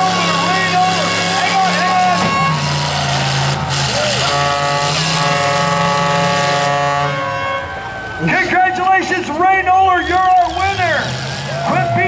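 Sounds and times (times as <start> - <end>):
steady horn tone: 0.0 - 2.8, 3.4 - 7.9
pickup truck engines running: 0.0 - 12.0.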